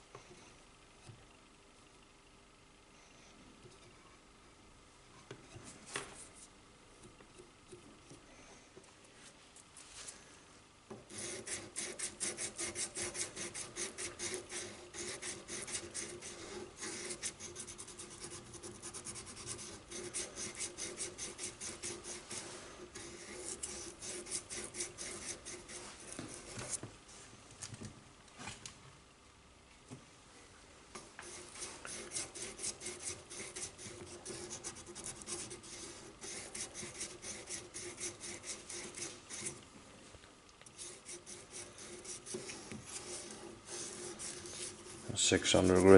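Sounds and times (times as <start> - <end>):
sandpaper rasping on steel: 11.1 - 17.6, 31.4 - 39.5.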